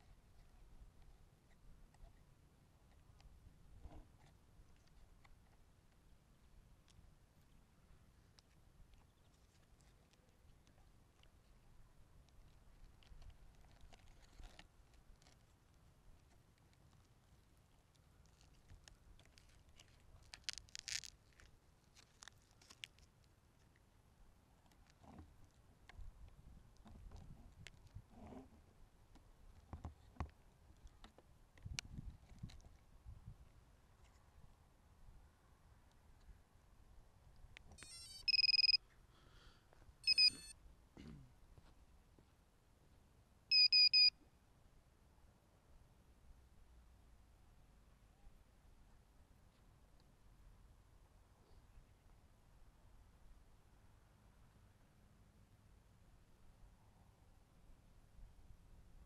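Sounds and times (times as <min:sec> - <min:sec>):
faint crackles and clicks: 0:02.8 - 0:23.9, 0:24.5 - 0:28.5, 0:29.1 - 0:34.3
high-pitched electronic beeps: 0:37.8 - 0:38.8, 0:40.0 - 0:40.5, 0:43.5 - 0:44.1.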